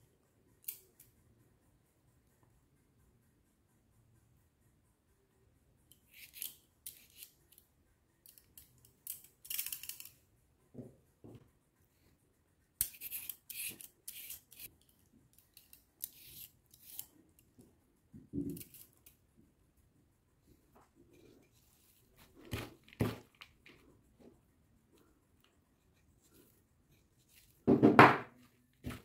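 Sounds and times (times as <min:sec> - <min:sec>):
peeler scraping cucumber: 0:05.9 - 0:07.6, 0:12.8 - 0:14.8, 0:15.4 - 0:17.2, 0:18.5 - 0:19.1.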